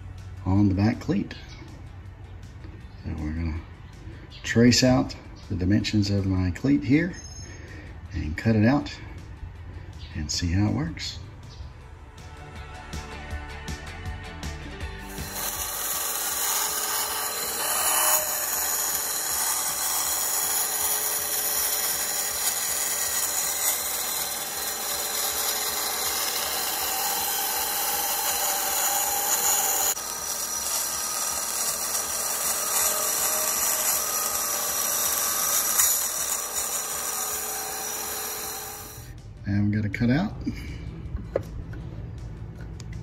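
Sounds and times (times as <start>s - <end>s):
band saw cutting plywood: 14.8s - 39.1s.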